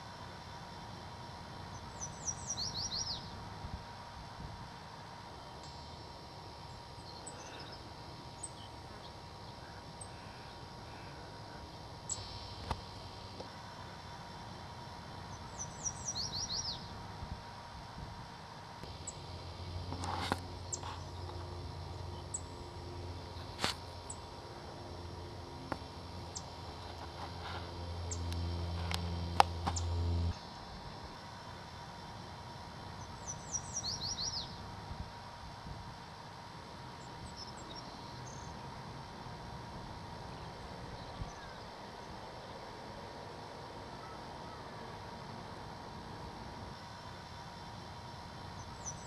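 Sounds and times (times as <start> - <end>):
outdoor background noise: 0.0 - 49.0
steady low hum: 0.0 - 49.0
songbird chip notes: 1.7 - 3.4, 15.2 - 17.0, 33.0 - 34.6.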